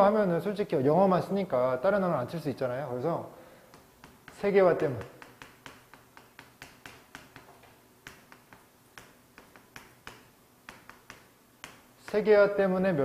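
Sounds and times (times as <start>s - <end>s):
chalk tapping and scratching on blackboard: 3.7s - 12.4s.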